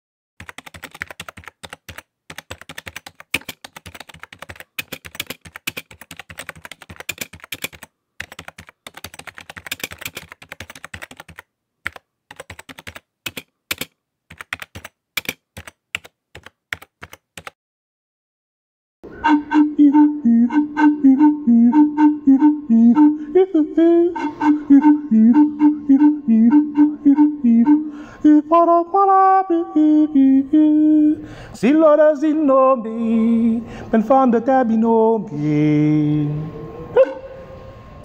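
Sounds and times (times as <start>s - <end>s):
keyboard keystroke clicks: 0.4s - 17.5s
flute-like wind instrument: 19.0s - 30.2s, 35.8s - 38.0s.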